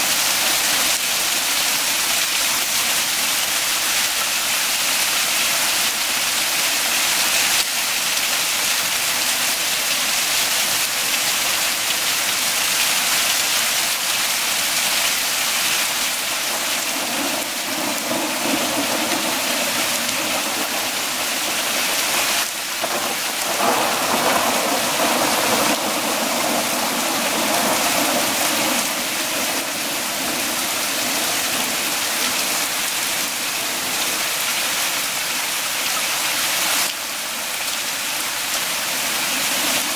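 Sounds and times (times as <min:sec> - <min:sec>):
heavy rain pouring: 0:00.0 - 0:39.9
rolling thunder: 0:16.4 - 0:32.0.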